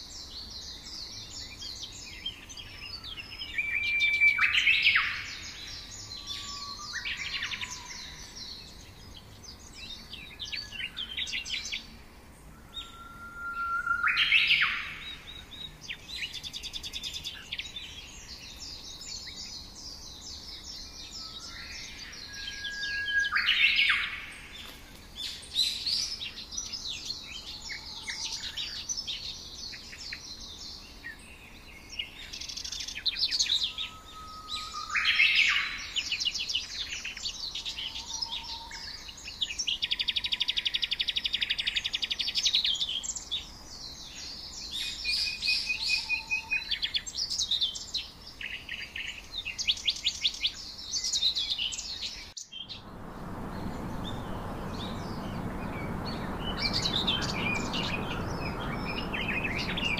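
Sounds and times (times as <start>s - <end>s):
songbirds chirping and singing: 0.0s - 59.9s
bird rapid trill: 52.5s - 59.9s.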